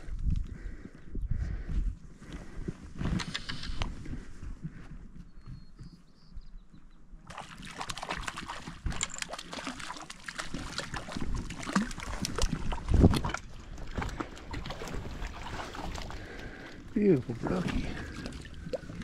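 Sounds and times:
water splashing and sloshing: 7.2s - 19.0s.

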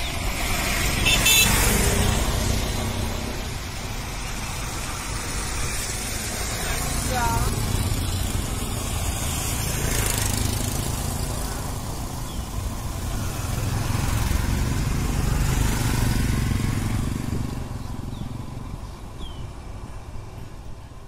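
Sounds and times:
motorcycles passing on wet road: 0.0s - 19.8s.

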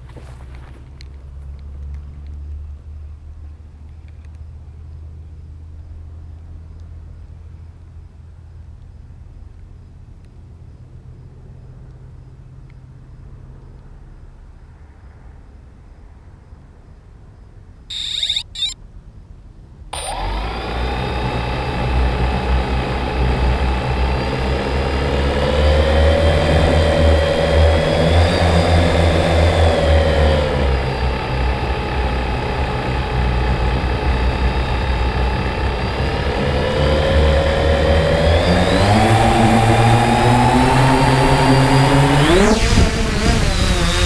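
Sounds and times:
drone motors humming: 17.9s - 18.8s, 19.9s - 44.0s
short high beeps: 17.9s - 18.8s.

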